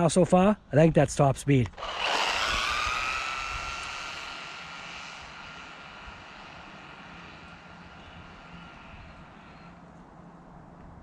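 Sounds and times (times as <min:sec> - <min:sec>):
electric motor whining: 0:01.7 - 0:10.0.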